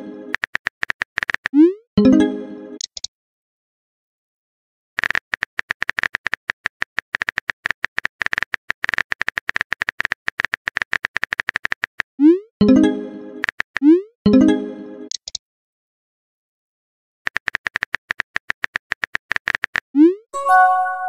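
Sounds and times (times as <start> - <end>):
phone keyboard typing clicks: 5.0 - 12.0, 17.3 - 19.9.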